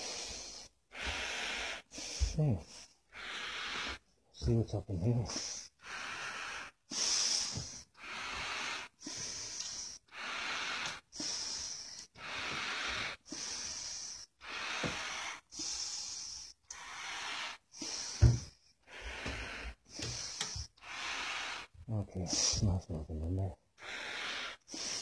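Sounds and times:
person breathing hard: 0.0s - 4.2s, 5.2s - 22.8s, 23.8s - 25.0s
dull thump: 18.2s - 18.5s.

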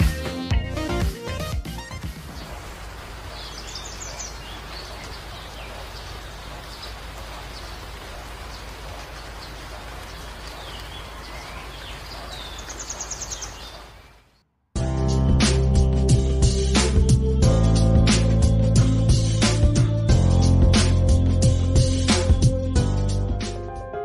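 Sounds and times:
creek rippling over pebbles: 2.0s - 14.2s
birds chirping: 2.1s - 14.4s.

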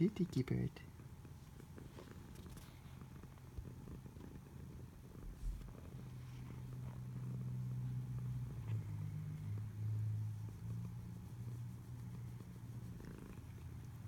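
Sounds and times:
cat purring: 0.0s - 14.0s
soft low bump: 5.2s - 5.8s.

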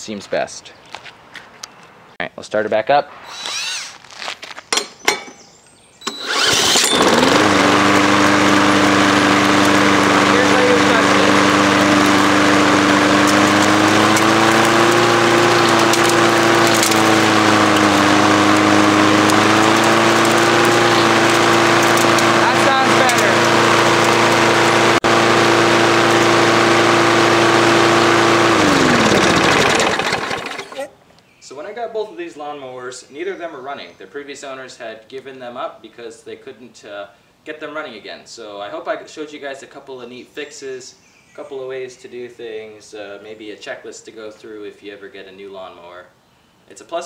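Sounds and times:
power drill spinning engine: 3.3s - 4.0s, 6.0s - 30.9s
lawn mower engine running: 6.0s - 30.9s.

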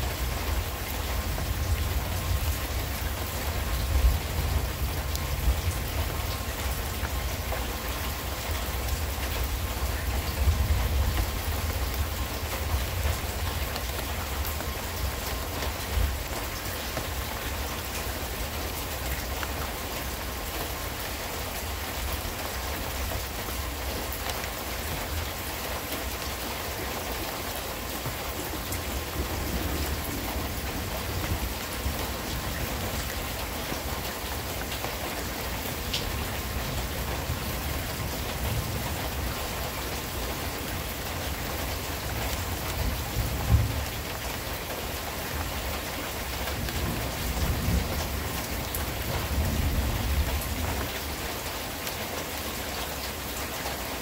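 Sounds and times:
steady rain falling: 0.0s - 54.0s
low thunder rumbles: 28.3s - 33.2s, 42.1s - 44.2s.

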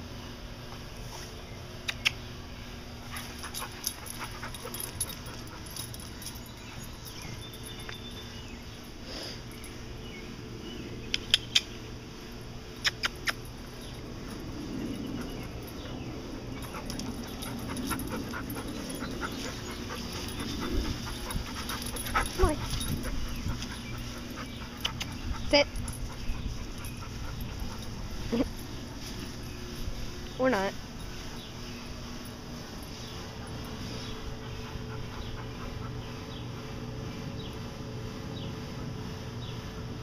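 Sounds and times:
dog panting: 3.0s - 7.8s, 13.0s - 29.7s, 30.9s - 37.5s.

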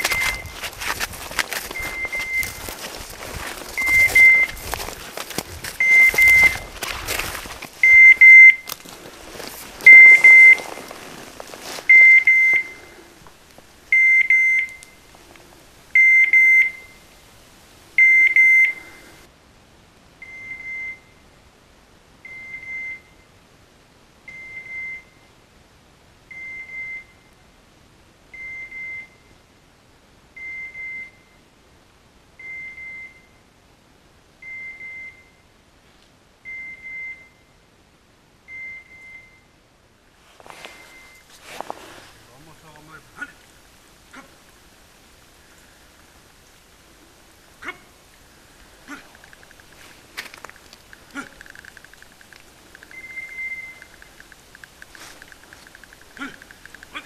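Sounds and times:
dog collar beeper beeps: 0.0s - 0.6s, 1.8s - 2.6s, 3.8s - 4.6s, 5.8s - 6.7s, 7.8s - 8.7s, 9.9s - 10.6s, 11.9s - 12.8s, 13.9s - 14.9s, 16.0s - 17.0s, 18.0s - 18.9s, 52.9s - 54.1s
rustling through brush: 0.0s - 14.0s, 40.1s - 57.0s.

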